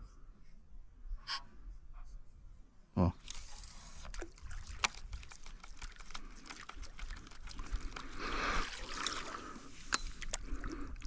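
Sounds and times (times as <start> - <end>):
water splashes and drips: 3.3 - 11.0
rush of water: 4.0 - 11.0.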